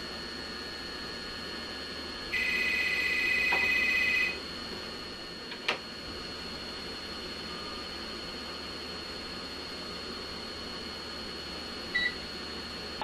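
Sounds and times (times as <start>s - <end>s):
electronic telephone ringer trilling: 2.4s - 4.3s.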